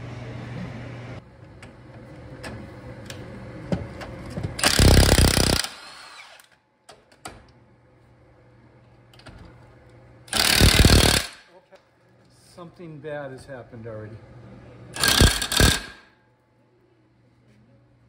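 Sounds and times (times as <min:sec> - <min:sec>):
impact wrench hammering: 0:04.6 - 0:05.9, 0:10.3 - 0:11.5, 0:15.0 - 0:16.1.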